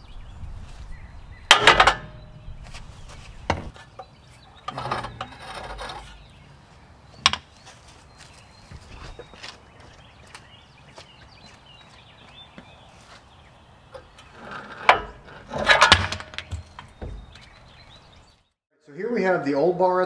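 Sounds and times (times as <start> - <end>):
rattling metal scrape: 1.5 - 4.0, 4.6 - 6.4, 14.2 - 16.6
metal knocks and clanks: 1.5 - 4.1, 4.7 - 6.2, 14.6 - 17.4.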